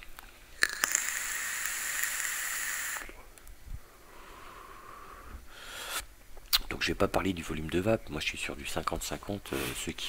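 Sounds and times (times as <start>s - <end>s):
e-cigarette coil hissing: 0.6s - 3.2s
breathy exhale: 3.8s - 6.1s.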